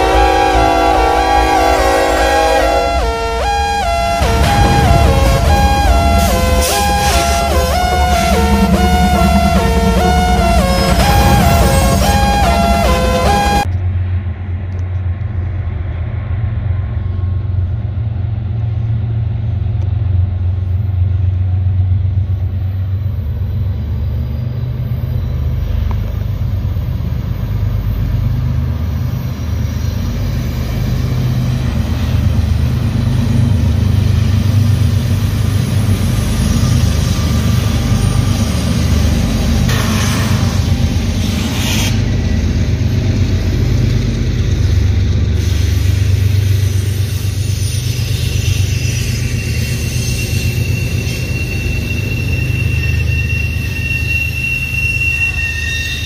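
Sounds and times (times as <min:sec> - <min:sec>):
freight cars rolling past: 0:00.0 - 0:15.7
diesel locomotives rumbling: 0:00.0 - 0:56.0.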